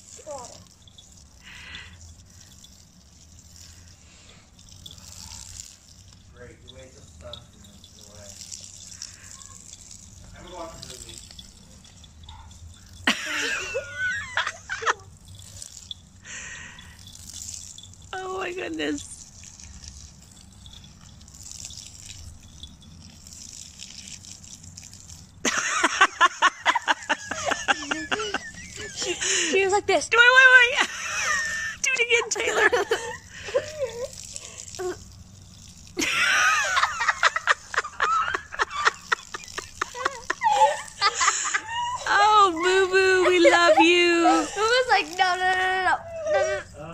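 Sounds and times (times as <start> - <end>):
water splashing from hose: 0.0 - 46.9
person laughing hard: 25.5 - 29.5, 36.0 - 42.4
wavering high-pitched cry: 30.4 - 46.9.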